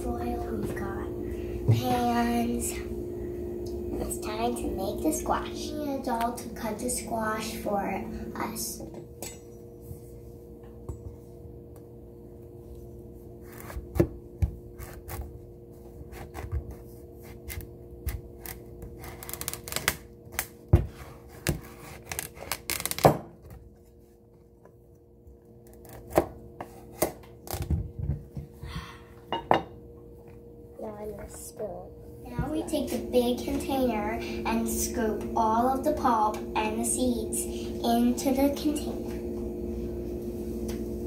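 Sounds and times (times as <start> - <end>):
low steady hum: 0.0 - 41.0.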